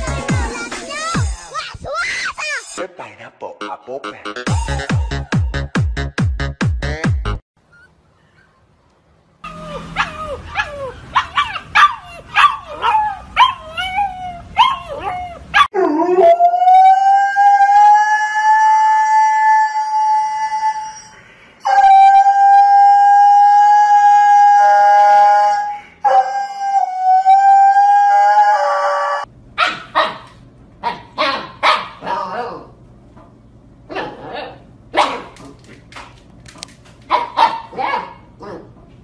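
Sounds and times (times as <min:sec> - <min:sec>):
dog yips sliding in pitch: 0:09.7 - 0:14.0
husky howling: 0:21.7 - 0:29.3.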